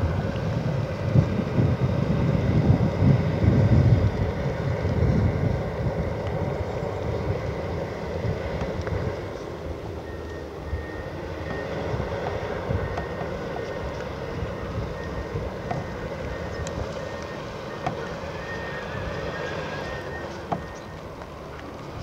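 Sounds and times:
diesel machinery rumbling: 0.0s - 22.0s
sharp clicks and knocks: 15.6s - 18.1s.

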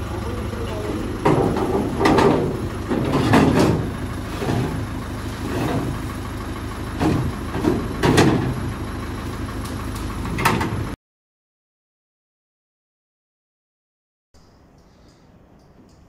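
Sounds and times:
truck engine idling: 0.0s - 11.0s
metallic knocks and clanks: 1.2s - 4.9s, 7.0s - 8.6s.

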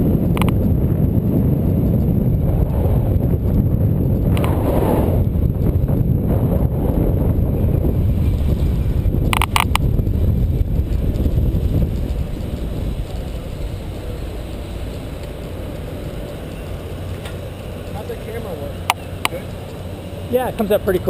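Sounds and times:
road and traffic rumble: 0.0s - 21.0s
wind buffeting microphone: 0.0s - 21.0s
sharp clicks: 0.3s - 0.6s, 9.3s - 9.9s.

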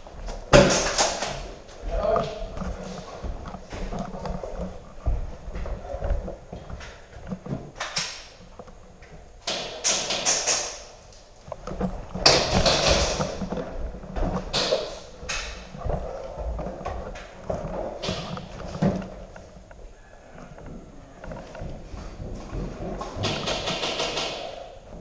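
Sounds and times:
footsteps on hard floor: 1.4s - 7.8s, 20.6s - 23.4s
gear rustling and knocking: 2.1s - 8.8s, 11.4s - 19.8s, 20.4s - 25.0s.

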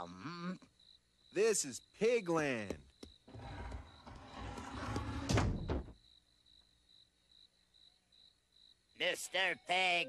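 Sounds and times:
cartoon door slamming: 4.6s - 6.0s.

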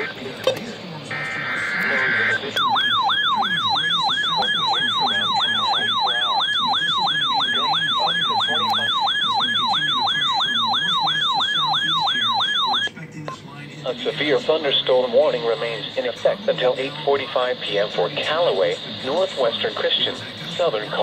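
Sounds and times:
electronic alert siren whooping: 1.1s - 12.9s.

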